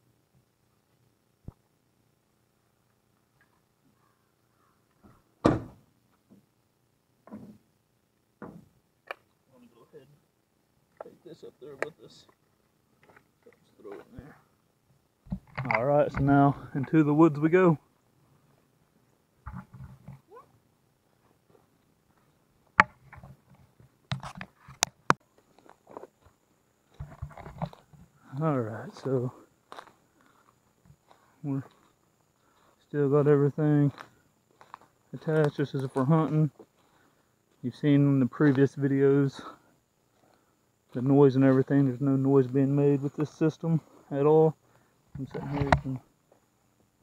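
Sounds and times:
dull thuds: 5.0s - 6.4s
truck door shutting: 5.4s - 5.8s.

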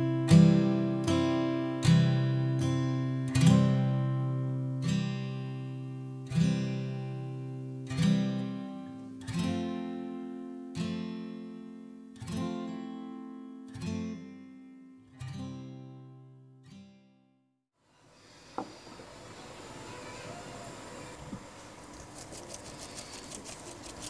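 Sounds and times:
slow acoustic guitar chords: 0.0s - 17.4s.

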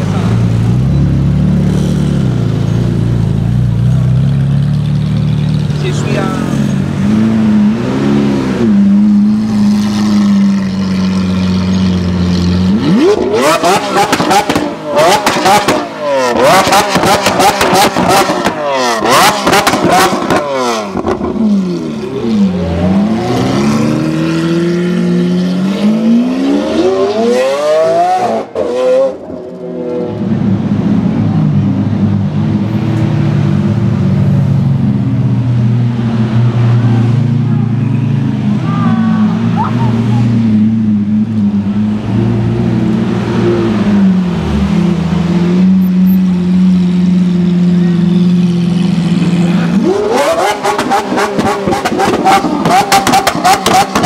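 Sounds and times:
car engines running at low revs: 29.1s - 54.0s.

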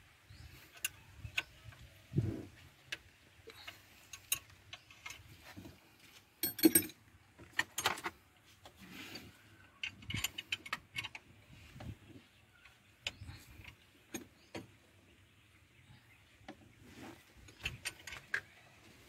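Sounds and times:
metal jangle: 6.4s - 7.0s
metallic clicks of tools: 6.4s - 7.0s.

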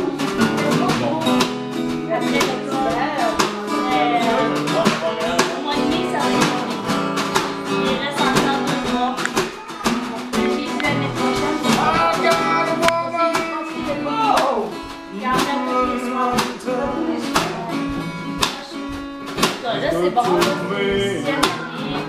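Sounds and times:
acoustic guitar strummed: 0.0s - 22.0s
snare drum beats: 0.0s - 22.0s.

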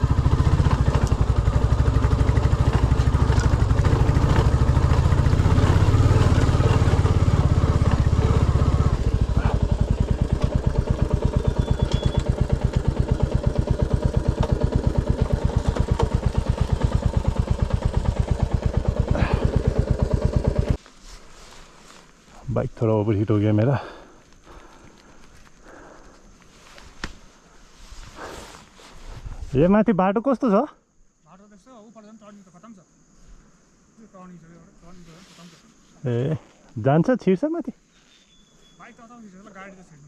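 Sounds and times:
motorcycle engine running: 0.0s - 20.8s
man talking: 22.4s - 24.0s, 29.5s - 32.8s, 34.0s - 37.8s.

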